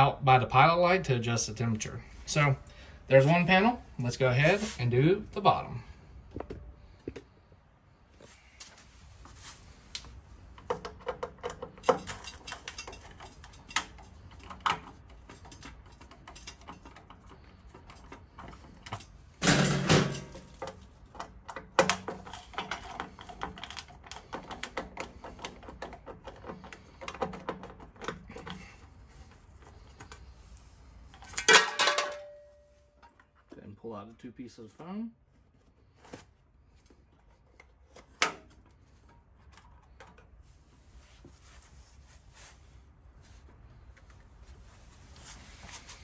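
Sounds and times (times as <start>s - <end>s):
metal cover rattling: 19.4s - 20.7s, 31.3s - 32.4s
screwdriver clicks and scrapes: 20.3s - 28.6s.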